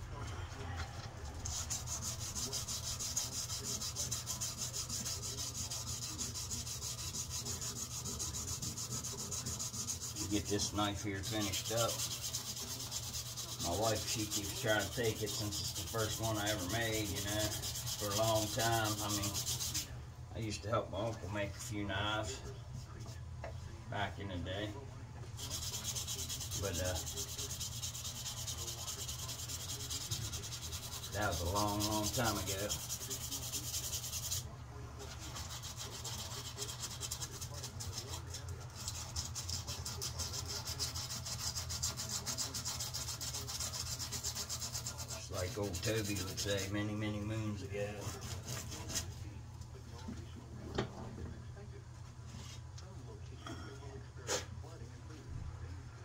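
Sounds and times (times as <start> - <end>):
sandpaper rubbing on wood: 1.4 - 19.9, 25.4 - 49.1.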